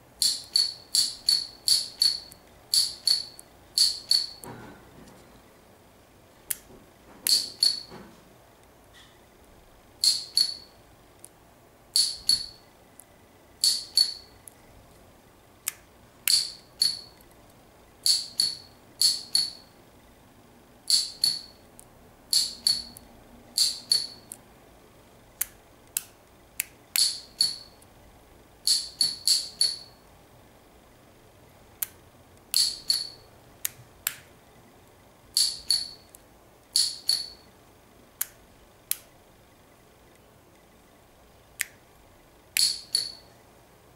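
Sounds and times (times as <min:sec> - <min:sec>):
solenoid metallic clicks: 0:00.2 - 0:04.5, 0:10.0 - 0:11.4, 0:12.0 - 0:14.6, 0:18.0 - 0:19.7, 0:20.9 - 0:24.4, 0:25.4 - 0:27.9, 0:28.6 - 0:30.0, 0:31.8 - 0:34.3, 0:35.4 - 0:37.5, 0:42.6 - 0:43.3.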